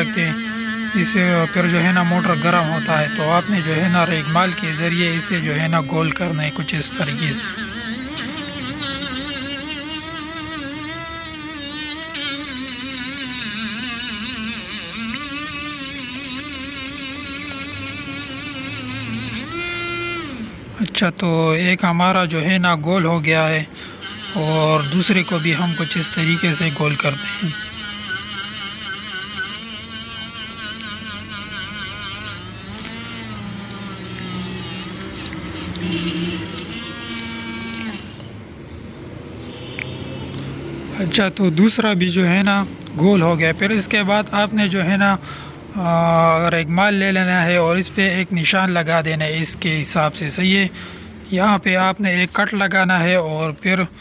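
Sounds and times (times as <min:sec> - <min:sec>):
sandpaper sanding hiss: 0:00.0 - 0:19.5, 0:24.0 - 0:38.1
small electric motor whining: 0:00.0 - 0:20.8, 0:23.8 - 0:38.3.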